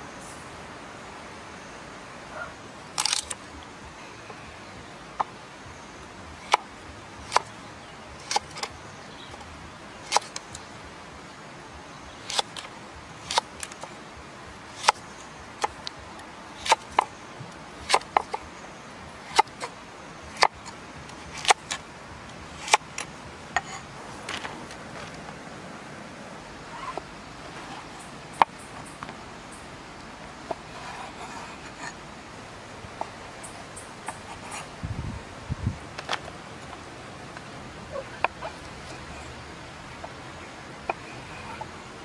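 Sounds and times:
faint steady hiss: 0.0 - 42.0.

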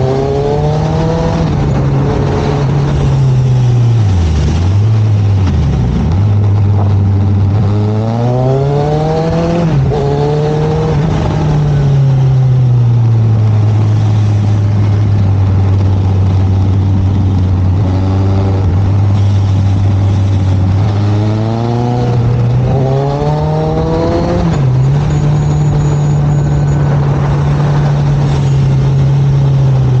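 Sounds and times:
motorcycle engine revving: 0.0 - 30.0.

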